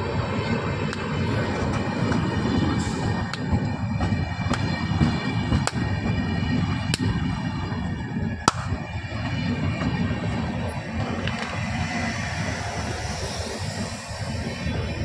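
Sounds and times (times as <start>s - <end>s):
train wheels rumbling on rails: 0.0s - 15.0s
wheels clacking over rail joints: 0.6s - 15.0s
thin high whine: 6.4s - 15.0s.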